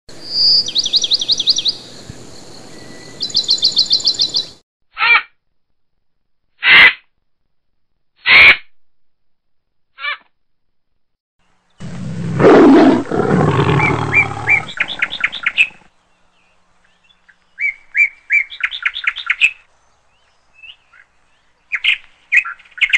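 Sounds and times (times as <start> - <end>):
high bird-like chirping calls: 2.7 - 5.2, 11.8 - 15.8.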